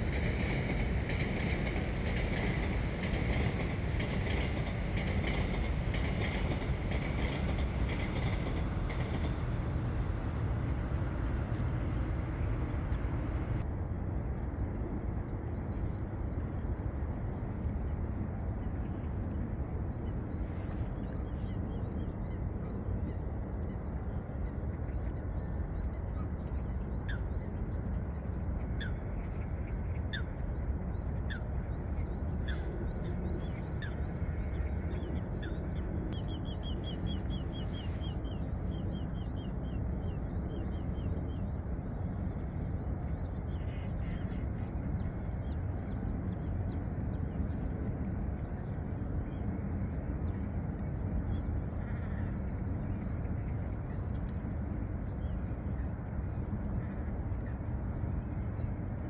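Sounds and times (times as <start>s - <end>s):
low background rumble: 0.0s - 59.0s.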